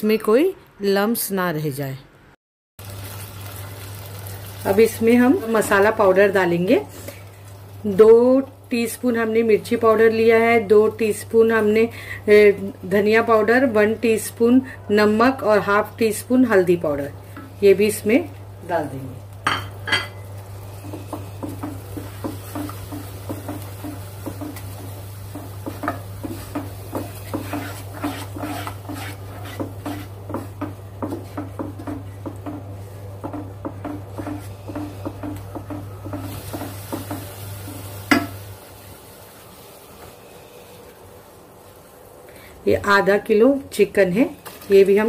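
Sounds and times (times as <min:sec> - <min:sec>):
wooden spoon scraping a saucepan: 0:20.9 - 0:37.1.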